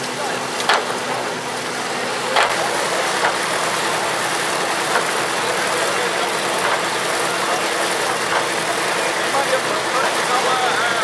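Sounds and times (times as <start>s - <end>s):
threshing machine whirring: 0.0s - 11.0s
machine knocks: 0.6s - 1.0s, 3.2s - 3.5s, 4.9s - 5.2s.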